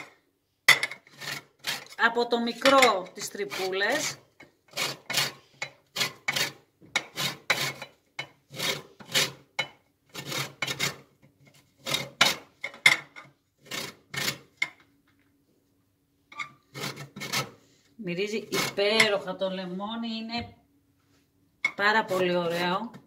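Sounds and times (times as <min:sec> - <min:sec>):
lemon rind rasping on grater: 0:01.1 - 0:02.2, 0:03.2 - 0:07.9, 0:08.5 - 0:09.4, 0:10.1 - 0:11.1, 0:13.6 - 0:14.5, 0:16.7 - 0:17.5, 0:18.4 - 0:19.1, 0:21.8 - 0:22.9.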